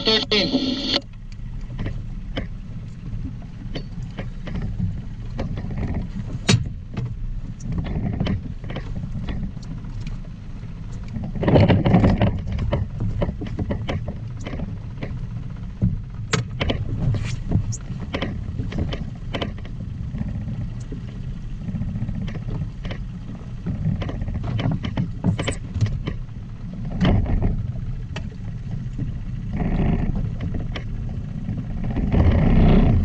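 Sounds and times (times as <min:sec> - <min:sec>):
water and wind rumble: 0:00.0 - 0:33.0
gear clicking and knocking: 0:10.8 - 0:26.3.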